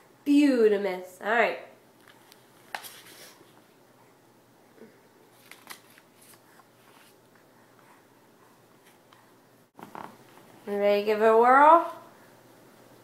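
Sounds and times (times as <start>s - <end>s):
paper rustling: 2.1s - 3.4s, 5.3s - 7.2s.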